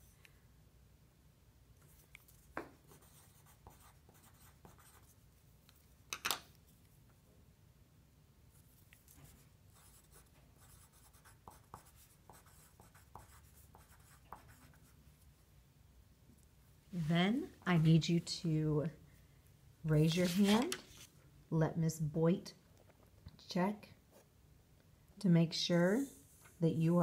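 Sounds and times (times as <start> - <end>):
pencil scratching on paper: 1.8 - 5.2, 9.0 - 15.0.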